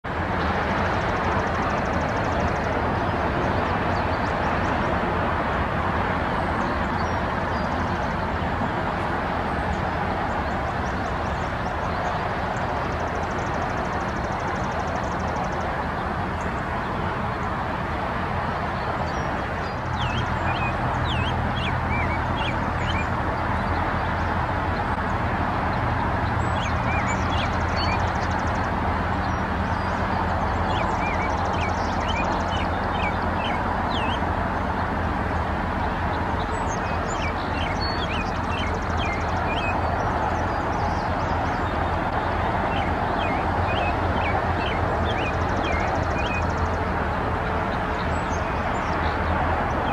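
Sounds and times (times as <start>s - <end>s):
small birds chirping: 18.6s - 34.7s, 36.1s - 46.9s.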